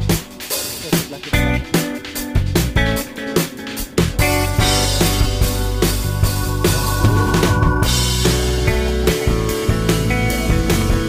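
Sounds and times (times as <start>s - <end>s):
drum kit beating: 0.0s - 11.0s
sustained guitar tones: 4.4s - 9.8s.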